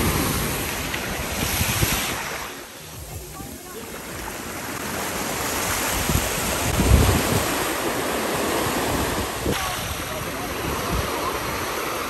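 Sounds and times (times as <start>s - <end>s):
ocean surf washing in: 0.0s - 12.0s
wind buffeting microphone: 5.5s - 11.9s.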